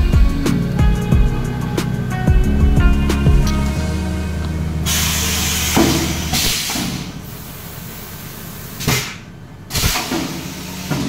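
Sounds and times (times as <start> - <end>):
compressed air hissing: 3.7 - 11.0.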